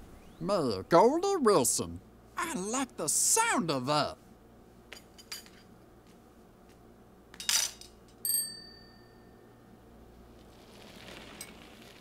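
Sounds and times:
bicycle bell ringing: 8.2 - 9.5.

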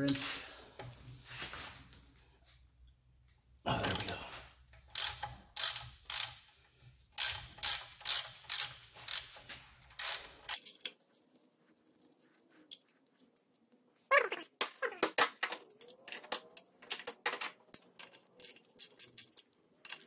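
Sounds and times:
wrench ratcheting clicks: 4.8 - 6.6, 7.2 - 10.8, 17.8 - 20.0.

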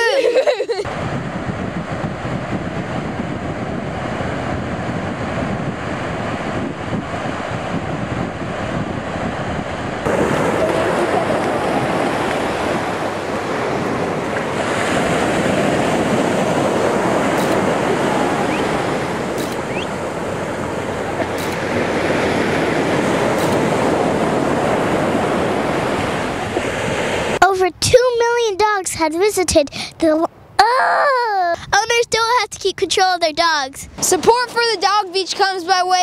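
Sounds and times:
ocean surf washing ashore: 0.0 - 27.4, 33.9 - 36.0
wind buffeting microphone: 0.7 - 28.3.

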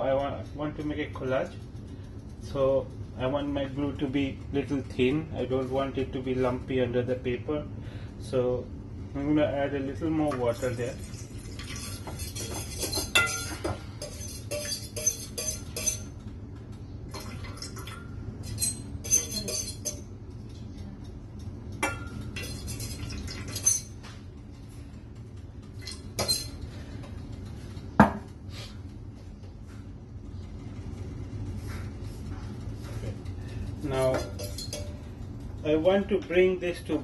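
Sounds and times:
metal spoon scraping a metal pot: 11.6 - 16.1, 18.4 - 20.0.

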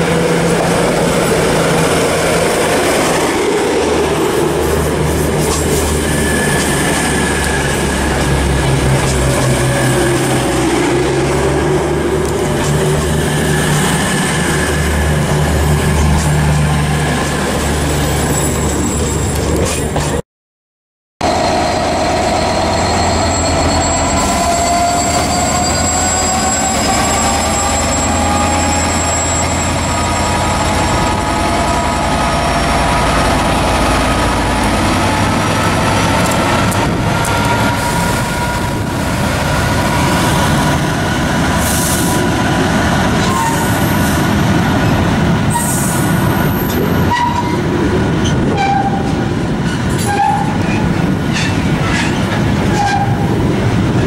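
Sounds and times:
locomotive engine drone: 0.0 - 20.2, 21.2 - 54.0
train wagons rumbling: 0.0 - 20.2, 21.2 - 54.0
wheel squeal: 21.2 - 32.2.

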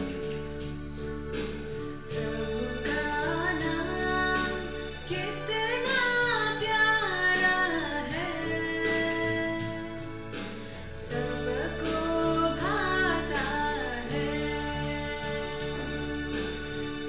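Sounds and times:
strummed guitar: 0.0 - 17.0
young woman singing: 2.1 - 10.4, 11.0 - 16.4.

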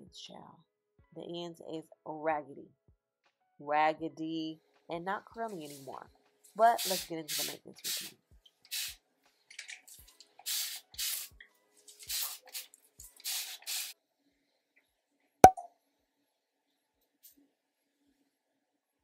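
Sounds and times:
spray bottle spraying: 6.7 - 8.1, 8.7 - 9.0, 10.4 - 11.3, 11.9 - 14.0.

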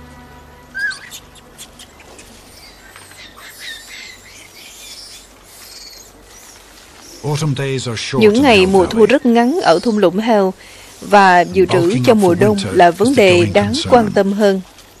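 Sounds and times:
soft background music: 0.0 - 2.6, 11.2 - 14.4
faint forest ambience: 0.0 - 15.0
monkeys squeaking and chirping: 0.8 - 7.4, 8.2 - 10.0, 11.1 - 14.2.

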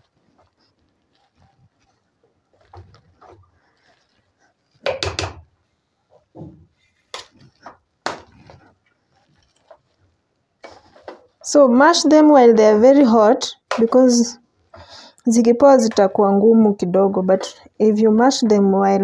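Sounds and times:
potato masher knocking in pot: 4.8 - 5.4.

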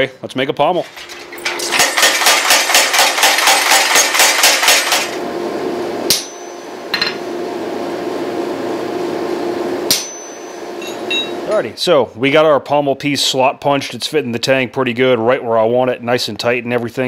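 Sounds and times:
steady hum: 0.0 - 13.5.

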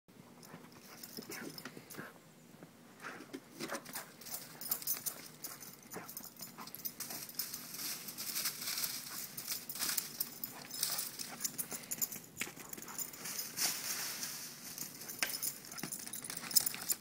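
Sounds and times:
dog running through dry leaves: 7.0 - 11.4.

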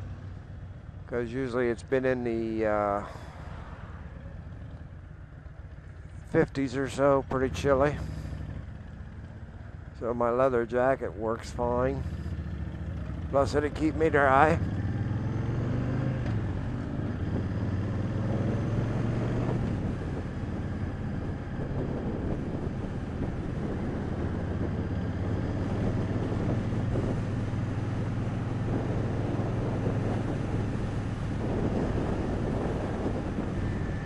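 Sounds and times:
motorcycle engine running: 1.8 - 34.0
wind noise on microphone: 16.3 - 34.0.

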